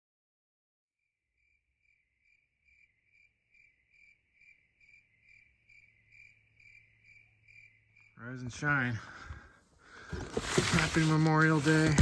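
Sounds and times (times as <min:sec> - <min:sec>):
crickets chirping: 0:01.0 - 0:10.1.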